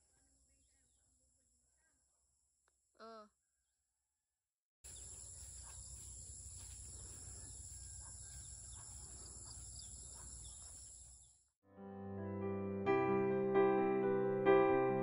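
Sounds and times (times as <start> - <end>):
insects droning: 4.9 - 11.4
bird chirps: 4.9 - 11.5.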